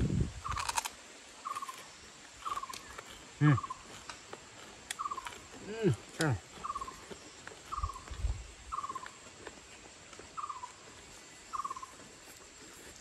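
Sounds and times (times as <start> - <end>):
small animal chirping: 2.4 - 4.0, 5.0 - 5.5, 6.2 - 9.2, 11.5 - 12.0.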